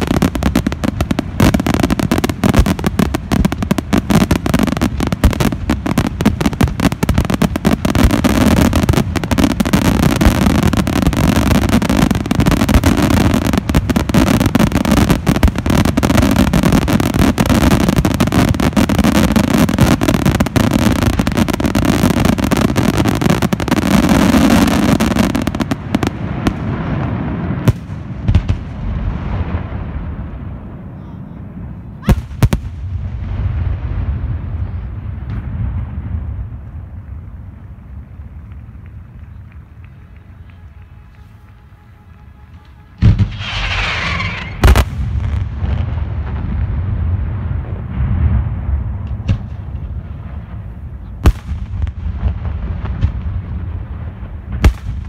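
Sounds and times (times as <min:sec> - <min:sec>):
firework shells bursting: 0:39.8 - 0:45.1.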